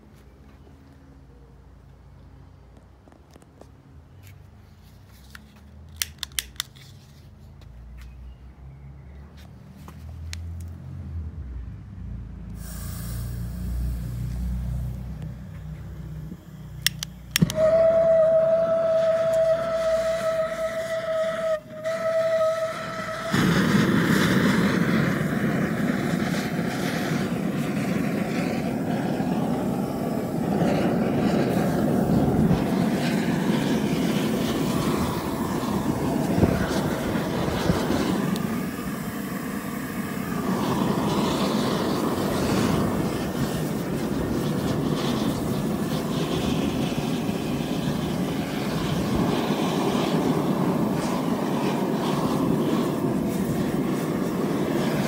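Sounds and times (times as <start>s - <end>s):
gas burners rushing: 12.2s - 55.0s
steady whistling tone: 16.0s - 55.0s.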